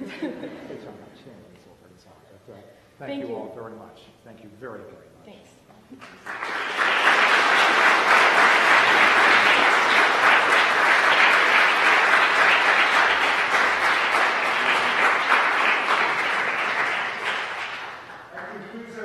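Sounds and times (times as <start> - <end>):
audience applauding: 6.0 - 19.0.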